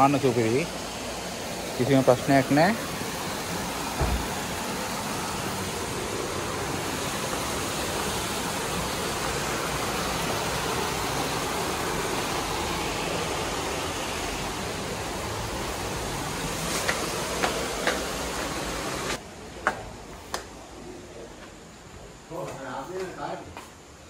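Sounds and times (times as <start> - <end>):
water rushing over rocks: 0.0 - 19.2
low thump: 4.0 - 4.3.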